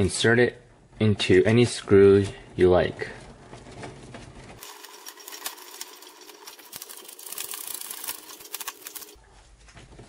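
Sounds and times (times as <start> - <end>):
screwdriver clicking and rattling: 4.6 - 9.2.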